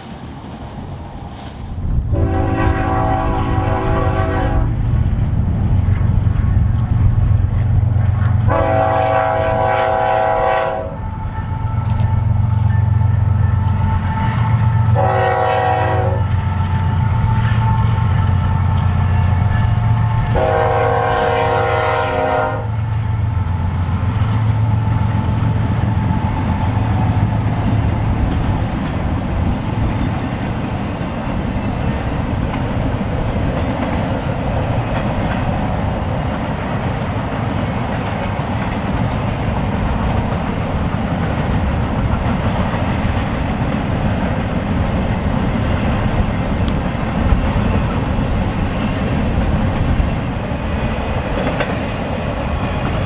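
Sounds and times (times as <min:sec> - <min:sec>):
freight cars rumbling: 0:00.0 - 0:15.1, 0:22.7 - 0:53.0
locomotive air horn: 0:02.1 - 0:04.8, 0:08.5 - 0:12.0, 0:13.8 - 0:18.7, 0:20.2 - 0:22.7
wheels clacking on rail joints: 0:23.4 - 0:53.0.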